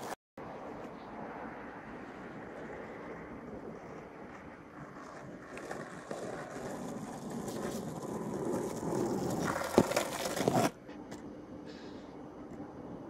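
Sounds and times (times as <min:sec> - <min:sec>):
skateboard wheels rolling on asphalt: 0:00.0 - 0:11.2
sharp skateboard clack: 0:03.8 - 0:10.8.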